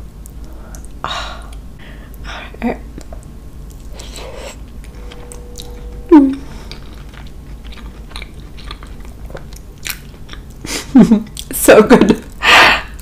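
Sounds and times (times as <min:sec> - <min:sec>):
short hum sliding down: 0:04.0 - 0:08.2
person chewing wetly: 0:07.0 - 0:11.5.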